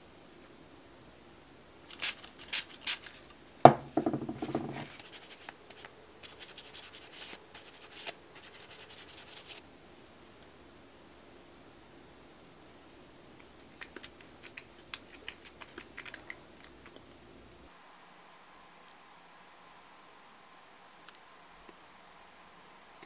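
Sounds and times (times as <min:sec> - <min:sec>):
nail wipe rubbing on nails: 0:04.4 - 0:09.6.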